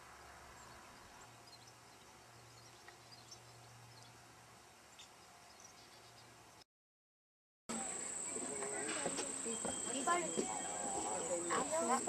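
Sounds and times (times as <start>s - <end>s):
faint high chirps: 9.4s - 11.7s.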